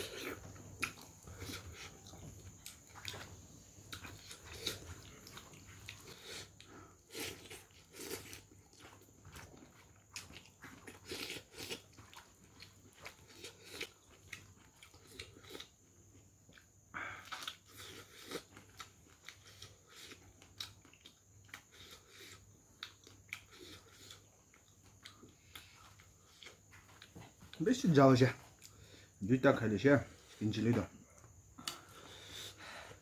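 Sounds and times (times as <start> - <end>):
person chewing and lip-smacking: 0.0 - 15.7, 16.5 - 27.7, 31.2 - 32.5.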